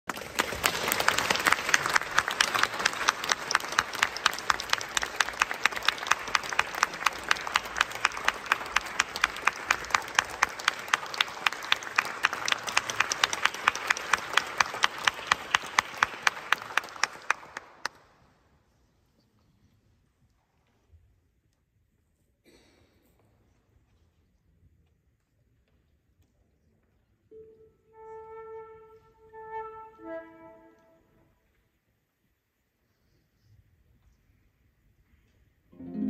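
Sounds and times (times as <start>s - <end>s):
audience applause: 0.1s - 18.0s.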